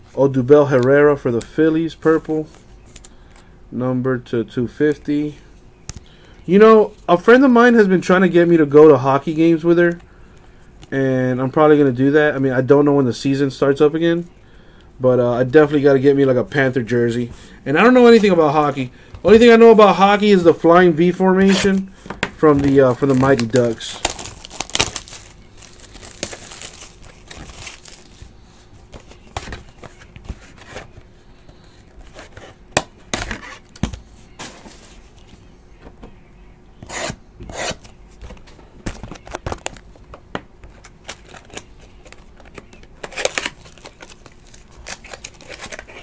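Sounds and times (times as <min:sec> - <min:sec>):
card pack crinkling and tearing: 0:22.5 - 0:28.3, 0:40.8 - 0:46.0.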